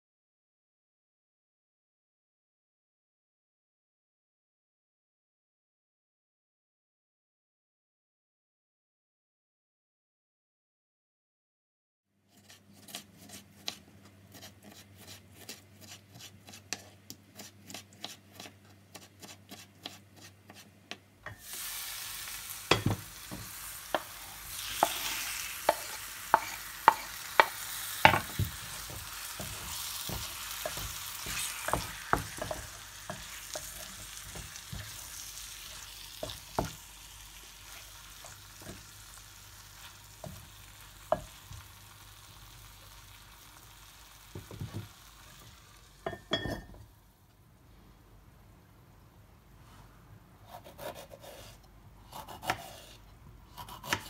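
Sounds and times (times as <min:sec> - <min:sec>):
wooden spoon scraping pot: 0:12.3 - 0:20.7, 0:22.7 - 0:36.8
knife slicing tomato on board: 0:12.3 - 0:21.0, 0:22.7 - 0:36.8, 0:50.4 - 0:54.0
tomato sizzling in pot: 0:21.2 - 0:46.9.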